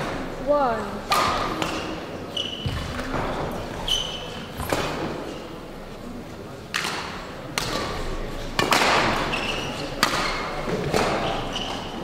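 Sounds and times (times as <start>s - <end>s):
rackets hitting shuttlecock: 1.1s - 3.4s, 6.7s - 12.0s
shoes squeaking on court floor: 1.6s - 5.6s, 8.4s - 12.0s.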